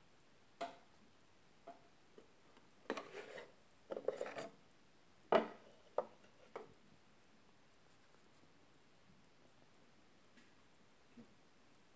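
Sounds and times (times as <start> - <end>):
wood scraping on wood: 2.9 - 4.5.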